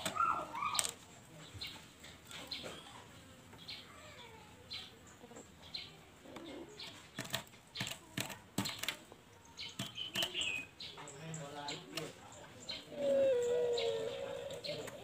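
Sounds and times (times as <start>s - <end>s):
dove shifting on perch: 0.0s - 1.0s, 9.8s - 10.6s, 13.0s - 15.0s
dove pecking seed from plastic cup: 6.3s - 10.7s.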